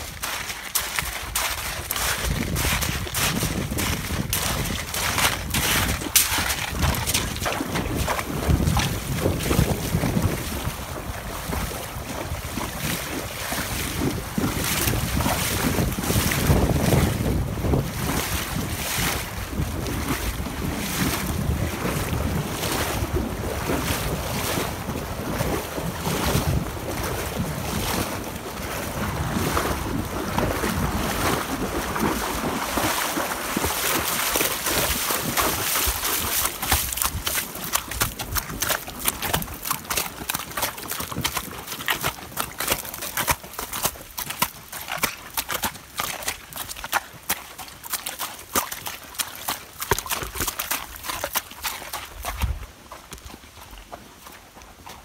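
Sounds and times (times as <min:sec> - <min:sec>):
hooves splashing through water: 0:00.0 - 0:55.0
wind buffeting microphone: 0:01.0 - 0:39.8, 0:52.2 - 0:52.7.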